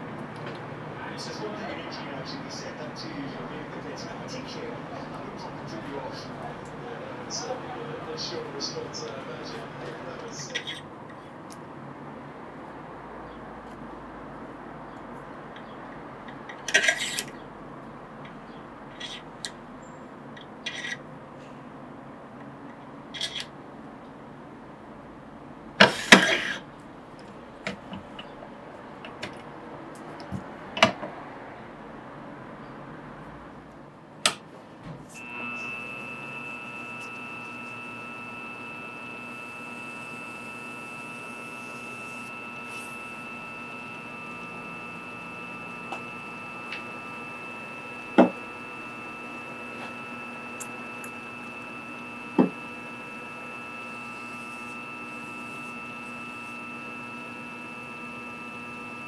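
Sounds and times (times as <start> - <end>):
lathe motor whining: 0.0 - 10.9, 35.1 - 59.0.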